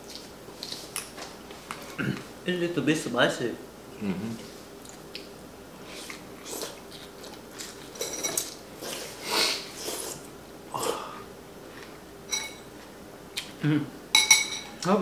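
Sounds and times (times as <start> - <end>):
person chewing and slurping: 5.8 - 8.0, 8.8 - 11.0
utensils clinking on dishes: 7.9 - 8.6, 12.3 - 12.7, 14.2 - 14.9.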